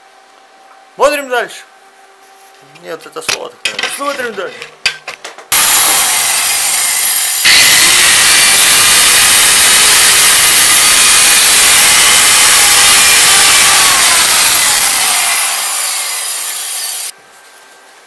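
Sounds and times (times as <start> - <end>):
angle grinder grinding metal: 5.5 - 17.1
grinder winding down whine: 5.5 - 17.1.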